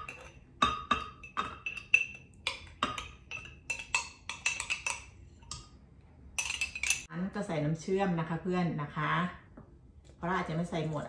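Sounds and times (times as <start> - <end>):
metal spoon tapping a cup: 0.0 - 5.6.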